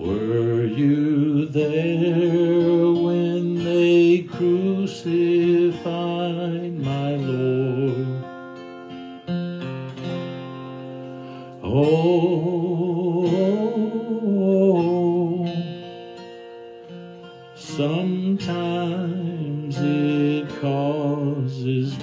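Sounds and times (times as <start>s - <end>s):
man singing a spiritual: 0.0s - 8.3s, 11.6s - 15.8s, 17.6s - 22.0s
strummed acoustic guitar: 0.0s - 22.0s.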